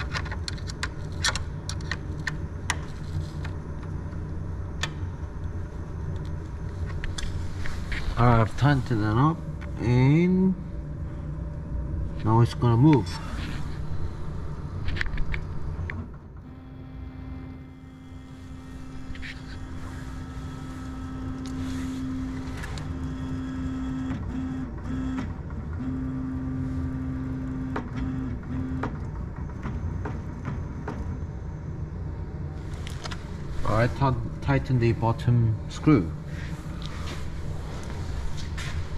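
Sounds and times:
stepper motors humming: 0:00.0 - 0:38.9.

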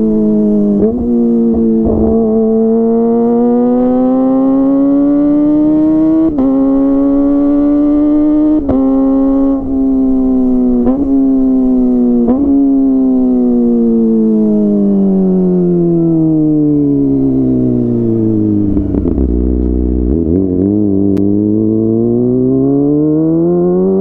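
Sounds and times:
motorcycle engine running: 0:00.8 - 0:05.4.

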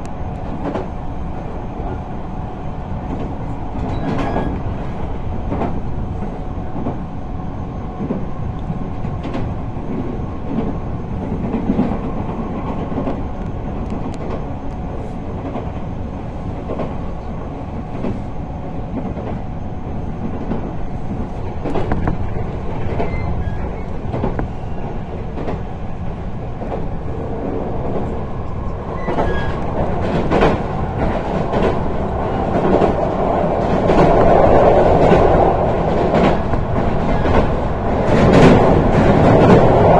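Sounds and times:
train rolling rumble: 0:00.0 - 0:39.9
wheels clacking over rail joints: 0:21.6 - 0:39.9.

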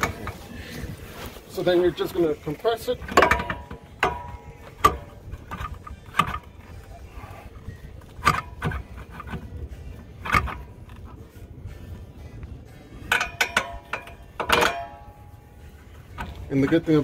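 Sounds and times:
metallic clicks and knocks: 0:03.0 - 0:06.9, 0:08.0 - 0:09.6, 0:13.0 - 0:15.3.

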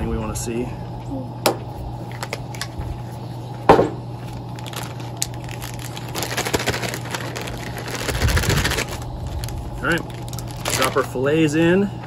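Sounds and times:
steady low hum: 0:00.0 - 0:12.0
plastic bag crinkling: 0:04.2 - 0:11.3.

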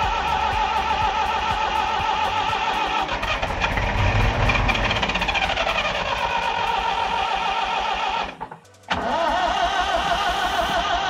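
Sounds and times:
starter motor cranking diesel engine: 0:00.0 - 0:11.0.

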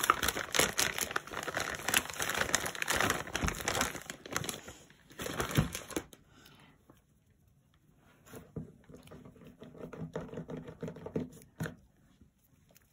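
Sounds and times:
plastic bag crinkling: 0:00.0 - 0:06.2.

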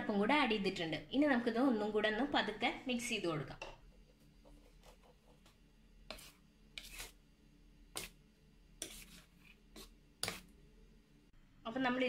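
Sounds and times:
spoon scraping steel pot: 0:06.1 - 0:07.2, 0:08.8 - 0:10.5.

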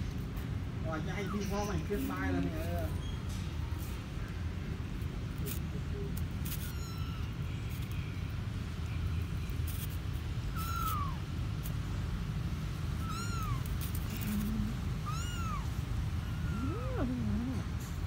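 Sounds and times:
low background rumble: 0:03.5 - 0:18.0
kittens mewing: 0:05.4 - 0:07.5, 0:10.5 - 0:11.3, 0:12.9 - 0:17.8.

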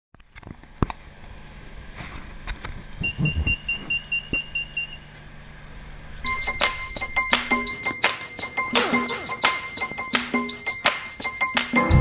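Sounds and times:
station hum: 0:00.8 - 0:12.0
rapid electronic beeping: 0:03.0 - 0:05.0, 0:06.2 - 0:11.6.

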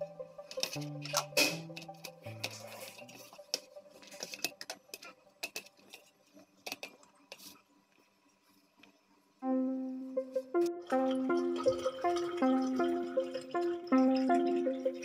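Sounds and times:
plucked-string background music: 0:00.0 - 0:05.0, 0:09.4 - 0:15.0.

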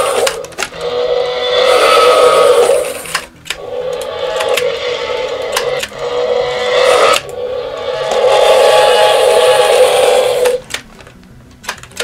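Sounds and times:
toy dinosaur roar from speaker: 0:00.0 - 0:10.6.

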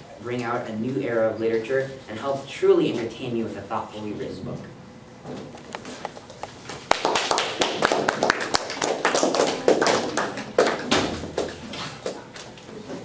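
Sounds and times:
small group clapping: 0:06.4 - 0:12.6.

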